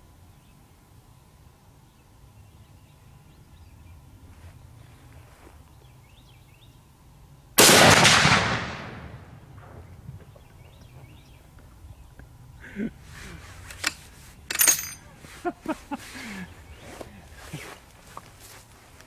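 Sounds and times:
rifle shot: 7.6 - 9.8.

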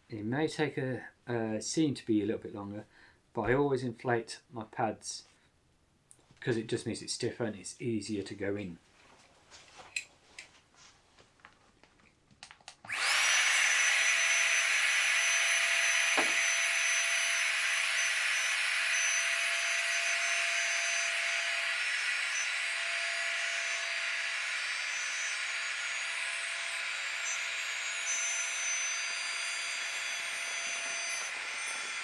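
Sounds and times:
electric air pump whining: 12.9 - 32.0.

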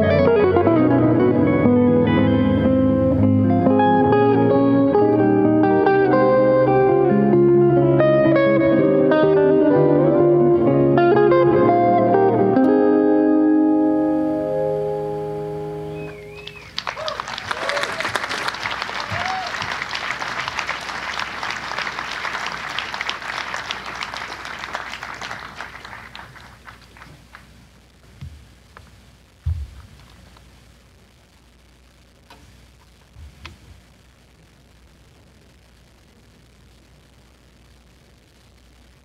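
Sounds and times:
electric jazz guitar playing: 0.0 - 16.5
audience cheers: 16.0 - 26.4
audience applause: 16.0 - 27.6.

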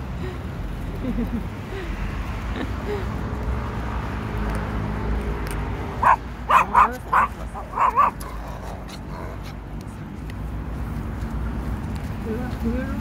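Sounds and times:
small dog yapping: 6.0 - 9.6.

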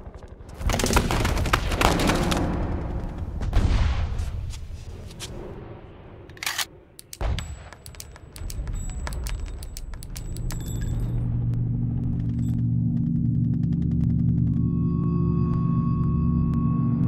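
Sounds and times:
rifle clanking: 6.3 - 11.2
low musical drone: 10.2 - 17.0.

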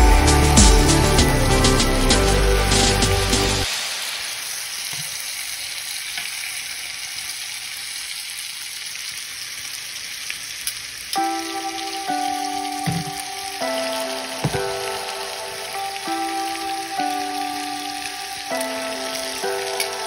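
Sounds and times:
music: 0.0 - 3.7, 11.2 - 20.0
steaks sizzling in a skillet: 3.6 - 20.0.

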